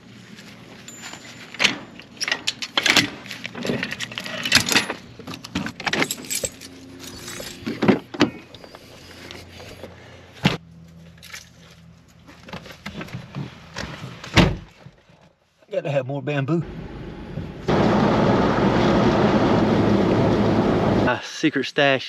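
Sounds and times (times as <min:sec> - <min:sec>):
metal chains clanking: 0:00.8 - 0:07.8.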